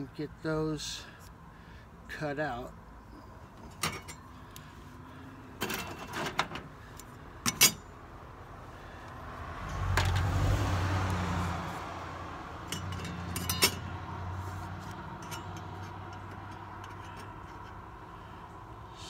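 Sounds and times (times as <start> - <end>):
vehicle passing rumble: 8.0 - 19.0
light metallic clicks and clinks: 12.6 - 13.9, 15.0 - 17.8.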